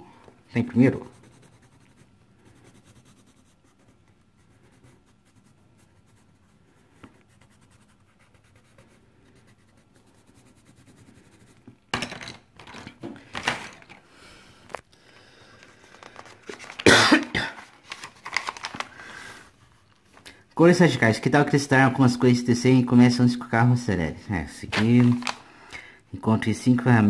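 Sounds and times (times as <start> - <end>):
pencil scratching on paper: 0.6 - 11.8.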